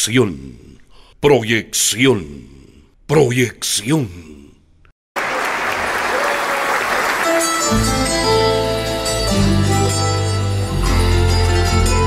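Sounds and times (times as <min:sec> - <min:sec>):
audience applause: 0:05.2 - 0:07.9
folk band plucked strings: 0:07.3 - 0:12.0.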